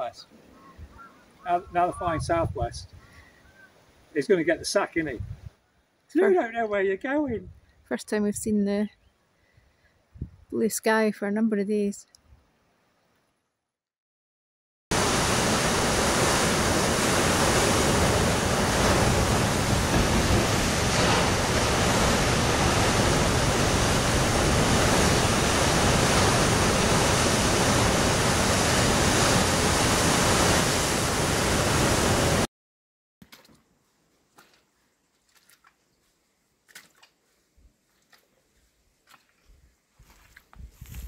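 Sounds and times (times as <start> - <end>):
wind rushing: 1.6 - 3.0, 15.6 - 32.4
choppy sea breaking on rocks: 15.0 - 32.4.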